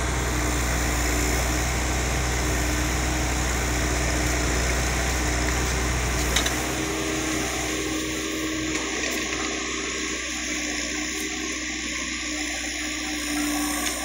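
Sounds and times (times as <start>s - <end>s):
motor humming: 0.0s - 14.0s.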